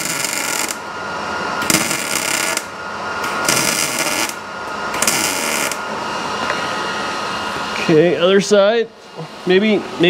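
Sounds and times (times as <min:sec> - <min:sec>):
welding arc crackling: 0:00.0 - 0:00.9, 0:01.6 - 0:05.9.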